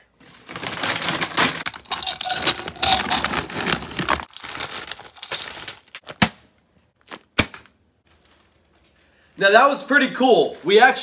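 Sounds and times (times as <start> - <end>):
plastic bag crinkling: 0.2 - 6.1
dry kibble rattling: 0.4 - 6.0.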